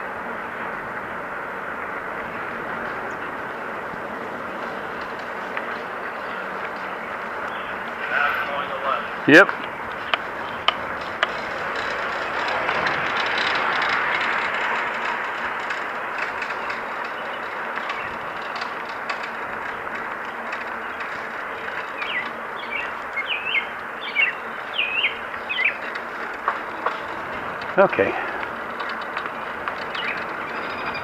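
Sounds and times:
bicycle tyre hum: 0:00.0 - 0:31.0
wind: 0:00.0 - 0:31.0
bird chirping: 0:05.7 - 0:08.6, 0:20.7 - 0:27.3, 0:29.4 - 0:31.0.

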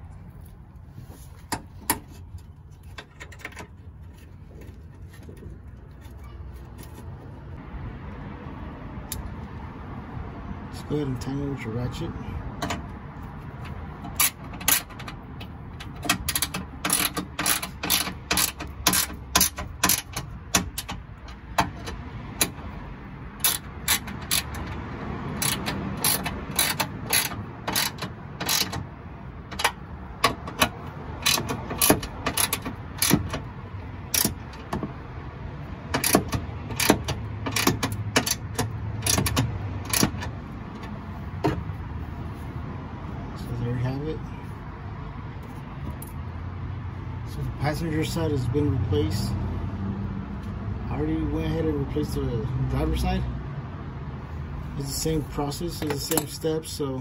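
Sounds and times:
hand ratchet clicking: 0:14.0 - 0:22.6, 0:23.4 - 0:28.9, 0:29.5 - 0:34.9, 0:35.9 - 0:40.9.

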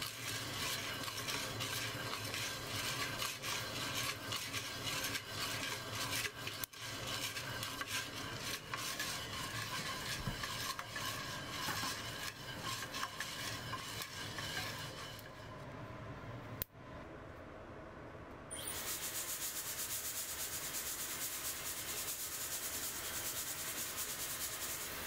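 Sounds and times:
coffee beans rattling in a pot: 0:00.0 - 0:15.2, 0:18.8 - 0:25.0.

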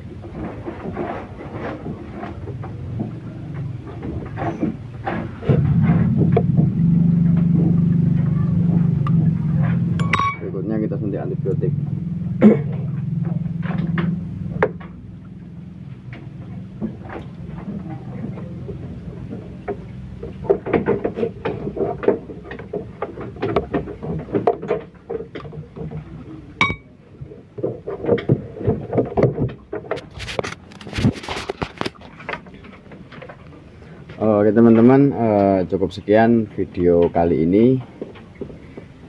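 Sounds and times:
low hum: 0:02.2 - 0:24.5, 0:25.5 - 0:27.4
sharp clink: 0:10.0 - 0:10.5, 0:26.6 - 0:26.9
light knocks and rustles: 0:15.9 - 0:26.4
phone rubbing and crackling: 0:30.0 - 0:32.1.

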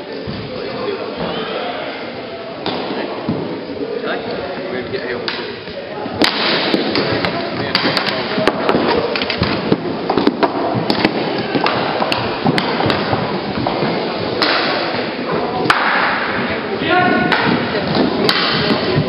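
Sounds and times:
hockey sticks clacking: 0:04.6 - 0:19.0
skate wheels rolling on hard floor: 0:06.6 - 0:15.6.

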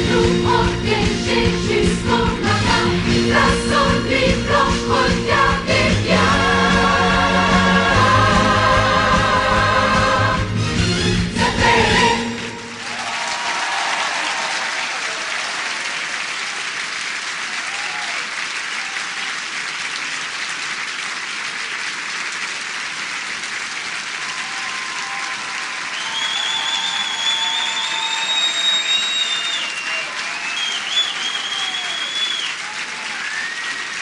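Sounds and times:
song ending: 0:00.0 - 0:12.8
audience applauding: 0:12.5 - 0:34.0
long high whistle: 0:25.9 - 0:34.0.

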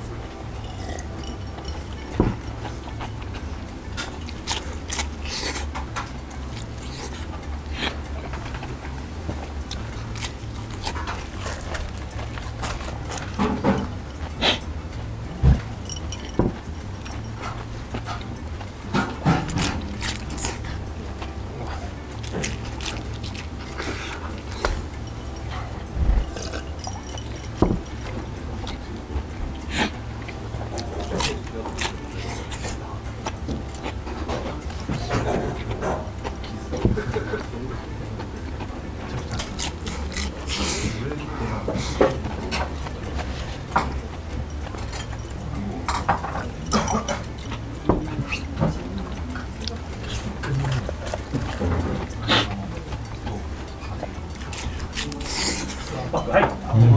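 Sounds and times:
crunchy chewing: 0:00.0 - 0:56.9
low steady hum: 0:00.0 - 0:56.9.

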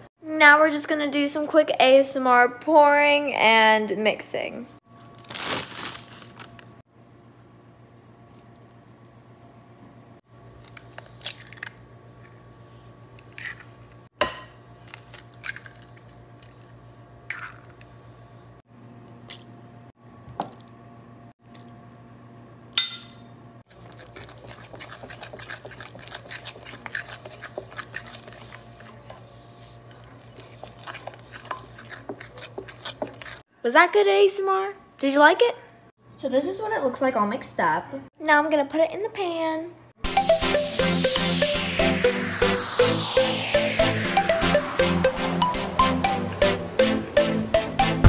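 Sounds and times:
spoon stirring thick batter: 0:23.7 - 0:33.4.

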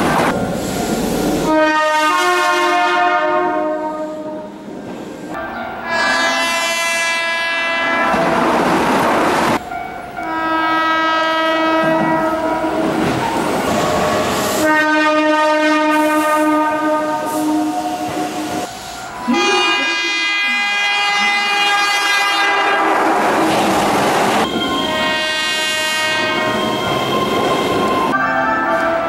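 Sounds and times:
train rumble and rail clatter: 0:00.0 - 0:29.0
train horn blasts: 0:01.4 - 0:04.5, 0:05.8 - 0:08.3, 0:10.2 - 0:12.9, 0:14.6 - 0:18.7, 0:19.3 - 0:23.2, 0:24.4 - 0:26.7.

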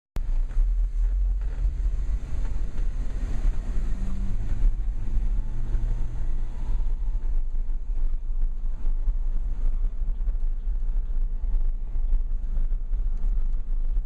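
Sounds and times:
steady engine tone: 0:00.2 - 0:14.0
truck engine low rumble: 0:00.2 - 0:14.0.

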